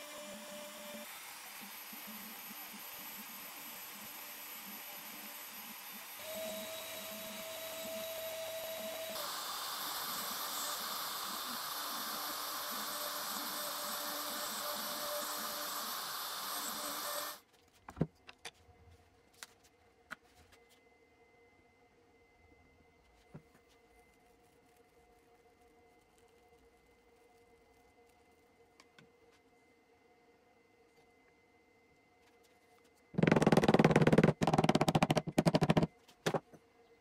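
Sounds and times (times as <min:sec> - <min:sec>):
router carving wood: 0:00.0 - 0:17.4
thin steady whine: 0:00.0 - 0:17.4, 0:19.1 - 0:33.2.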